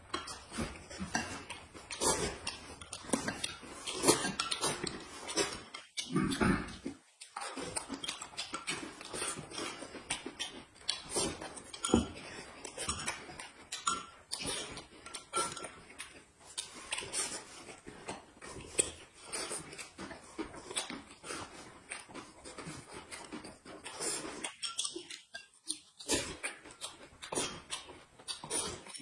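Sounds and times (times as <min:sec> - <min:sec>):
slurps and chewing: 0:00.0 - 0:29.0.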